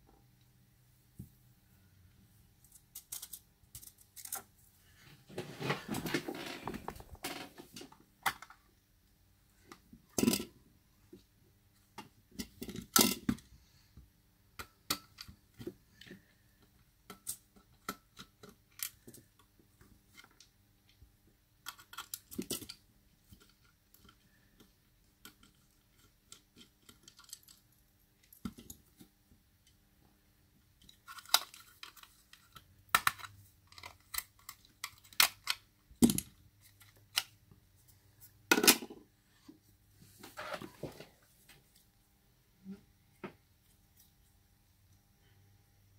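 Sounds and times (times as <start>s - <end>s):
plastic parts clicking and scraping: 2.6s - 8.7s, 14.6s - 21.0s, 21.6s - 29.8s, 30.6s - 37.6s.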